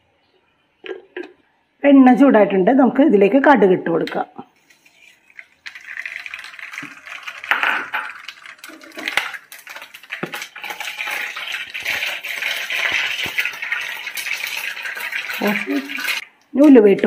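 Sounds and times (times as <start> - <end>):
seeds sizzling and popping in oil: 4.6 - 16.7.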